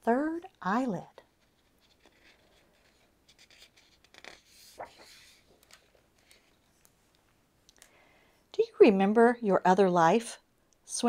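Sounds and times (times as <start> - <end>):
paper page turning: 1.3 - 6.9
light ticks of page: 1.4 - 7.9.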